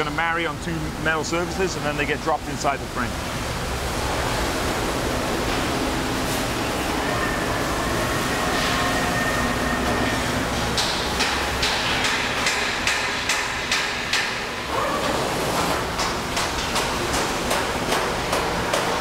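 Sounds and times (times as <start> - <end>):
factory background din: 0.0 - 19.0
sharp knocks and clicks: 10.8 - 14.4, 16.0 - 19.0.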